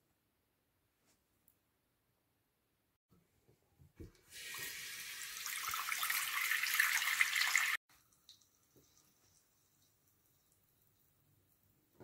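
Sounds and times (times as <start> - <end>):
tap water running into sink: 4.2 - 8.9.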